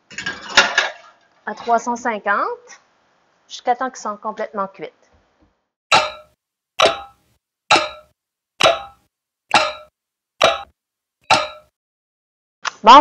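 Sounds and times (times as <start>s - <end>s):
sharp pitched knocks: 5.9s - 10.7s, 11.3s - 11.7s.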